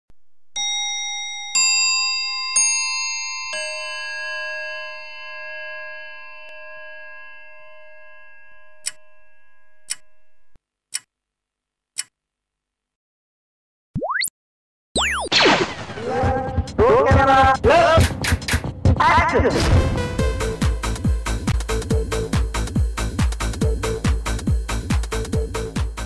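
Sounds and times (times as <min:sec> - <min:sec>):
sharp countdown ticks: 0:09.9 - 0:10.1.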